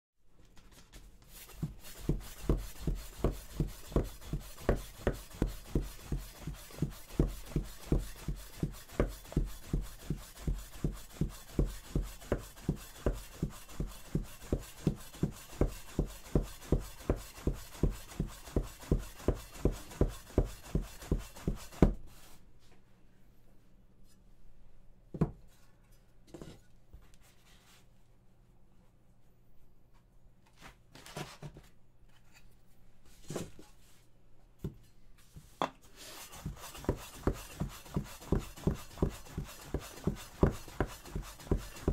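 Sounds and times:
knife chopping on wooden board: 1.6s - 22.0s, 36.4s - 41.9s.

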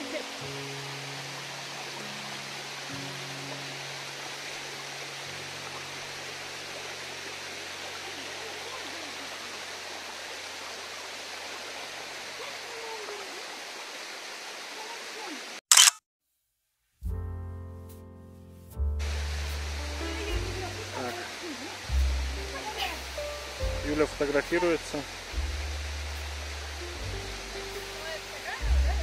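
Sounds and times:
waterfall and stream rushing: 0.0s - 15.6s, 19.0s - 29.0s
camera shutter click: 15.7s - 16.0s.

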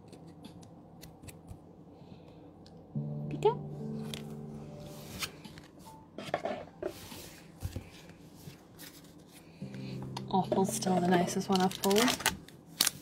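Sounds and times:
cards clicking and rustling: 8.8s - 13.0s.

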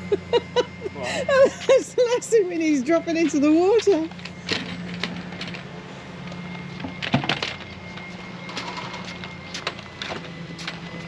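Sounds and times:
trolley wheels rumbling on decking: 1.6s - 5.7s.

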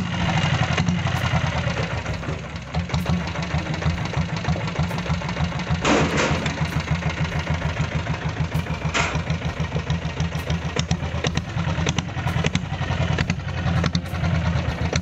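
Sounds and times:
motorcycle engine idling: 0.0s - 15.0s
sharp clattering ticks: 0.6s - 15.0s.

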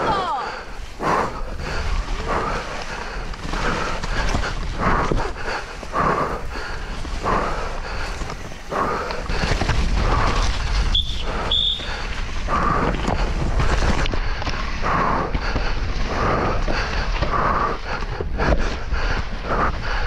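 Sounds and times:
rider breathing heavily: 0.0s - 20.0s
tyres churning through mud: 0.0s - 20.0s
wind rumble on microphone: 0.8s - 20.0s
bike clattering over bumps: 3.1s - 11.0s.

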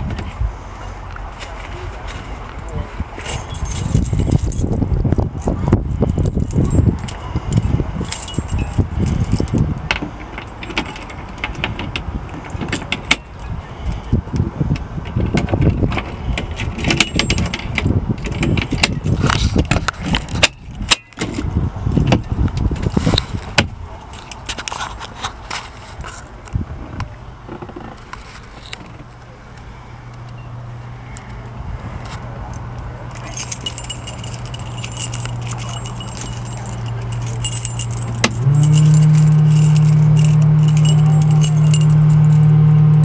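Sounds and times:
shifting low rumble: 0.0s - 10.6s, 29.9s - 43.0s.

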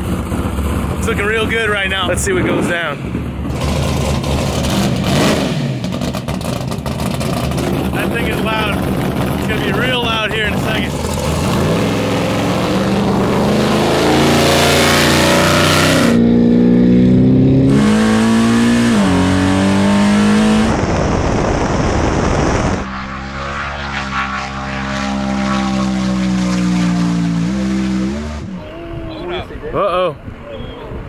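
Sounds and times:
race car engine accelerating: 0.0s - 28.8s
rushing noise: 7.4s - 16.4s, 17.6s - 28.8s.

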